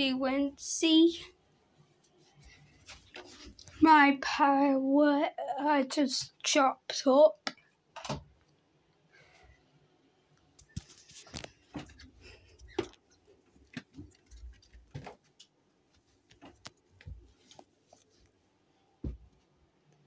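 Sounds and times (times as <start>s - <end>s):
plush toys handled: 2.7s - 3.8s, 10.6s - 18.4s.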